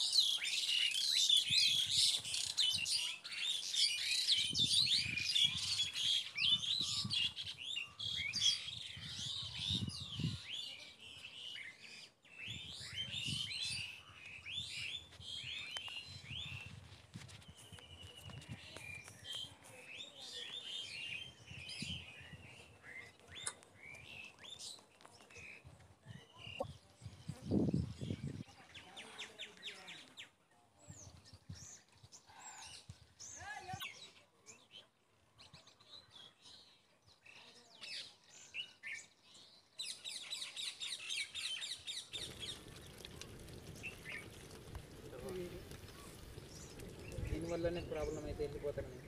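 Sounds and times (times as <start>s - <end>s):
birds chirping: 37.9s - 49.0s.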